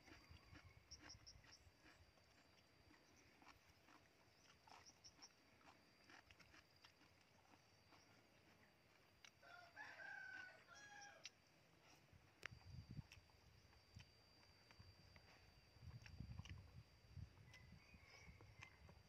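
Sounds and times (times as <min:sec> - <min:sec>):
faint rooster crowing: 0:00.1 - 0:01.3, 0:09.3 - 0:12.0, 0:17.3 - 0:19.0.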